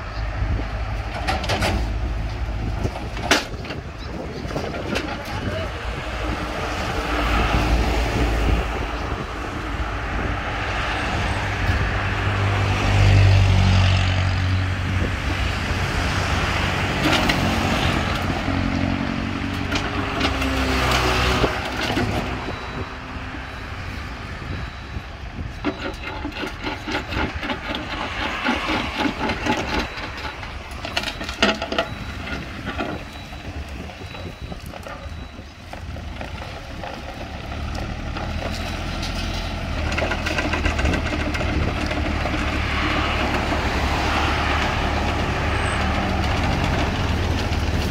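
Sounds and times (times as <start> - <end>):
small diesel excavator engine: 0.0 - 47.9
steel tracks clanking on ramps: 25.7 - 35.4.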